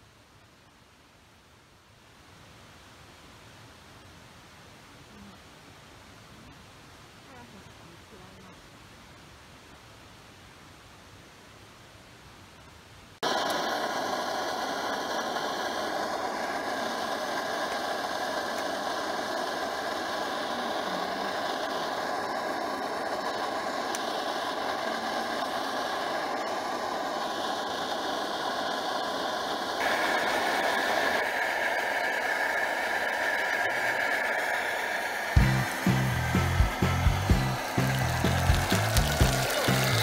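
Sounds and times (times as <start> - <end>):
camp stove burner roaring: 13.2 - 40.0.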